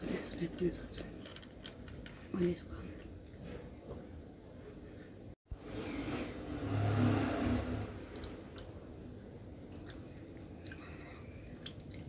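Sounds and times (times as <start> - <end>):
person chewing crunchy pencil: 9.7 - 12.0.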